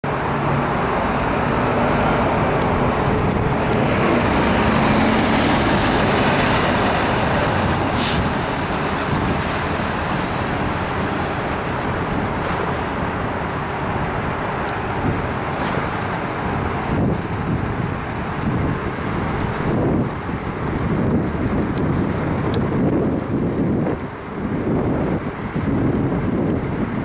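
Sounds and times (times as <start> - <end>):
steady traffic noise: 0.0 - 27.0
delivery truck driving past: 0.1 - 17.0
short hiss: 8.0 - 8.3.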